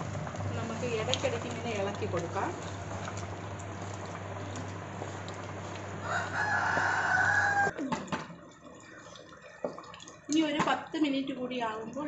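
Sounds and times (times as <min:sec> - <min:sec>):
rooster crowing: 0:06.0 - 0:07.8.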